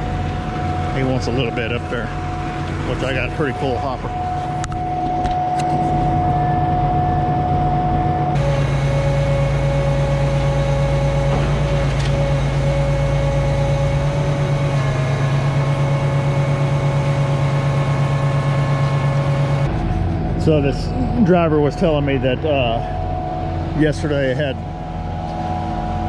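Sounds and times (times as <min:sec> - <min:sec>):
diesel engine hum: 0:00.0 - 0:26.0
pump whine: 0:00.0 - 0:26.0.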